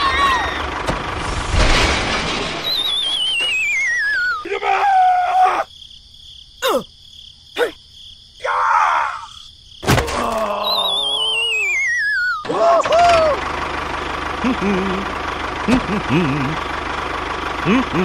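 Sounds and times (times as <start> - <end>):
falling wobbling whistle: 2.6 - 4.5, 10.7 - 12.4.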